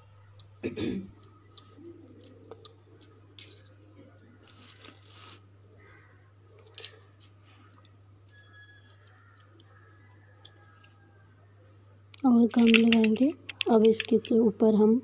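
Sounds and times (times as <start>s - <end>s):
plastic spoons clicking on foil: 12.2s - 14.4s.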